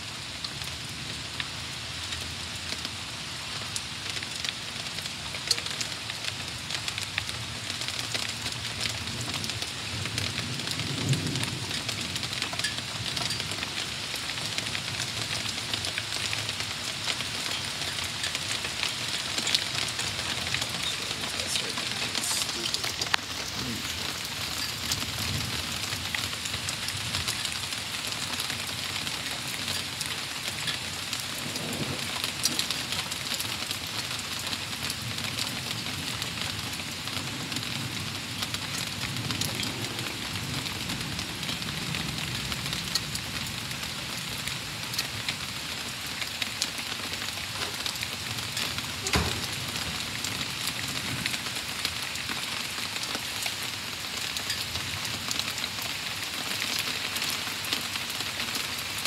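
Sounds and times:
rain falling: 0.0 - 59.0
low thunder rumble: 31.4 - 32.6.

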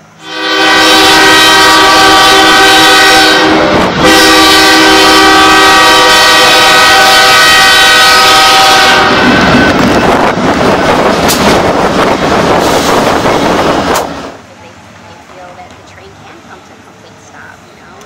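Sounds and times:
locomotive air horn: 0.2 - 9.5.

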